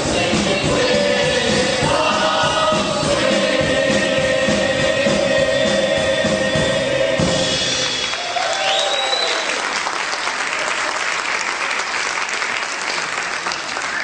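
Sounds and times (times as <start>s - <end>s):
big band held chord: 0.0s - 8.2s
audience applauding: 7.8s - 14.0s
audience cheering: 7.8s - 14.0s.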